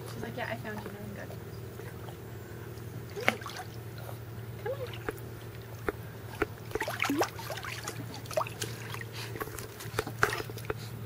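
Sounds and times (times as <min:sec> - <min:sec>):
steady low hum: 0:00.0 - 0:11.0
pool water splashing: 0:01.9 - 0:11.0
water dripping: 0:04.6 - 0:09.0.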